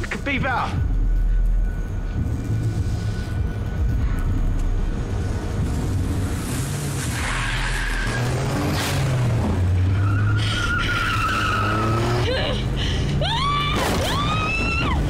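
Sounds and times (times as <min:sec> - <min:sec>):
car engine humming: 0:00.0 - 0:15.0
tyres squealing and skidding: 0:06.4 - 0:15.0.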